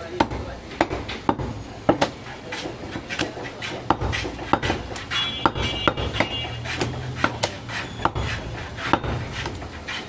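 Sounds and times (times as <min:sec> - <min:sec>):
knife chopping on wooden block: 0:00.1 - 0:10.0.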